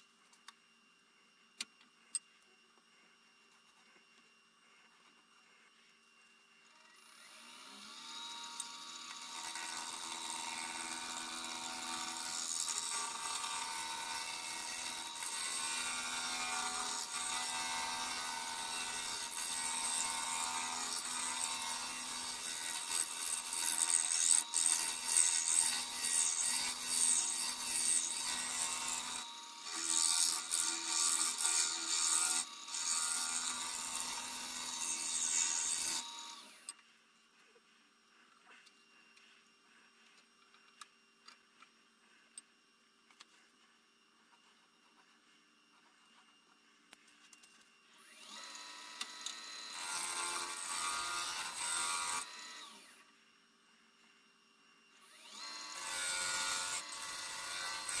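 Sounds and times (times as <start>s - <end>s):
wood lathe motor spinning: 6.6s - 36.8s, 47.9s - 53.1s, 55.0s - 58.0s.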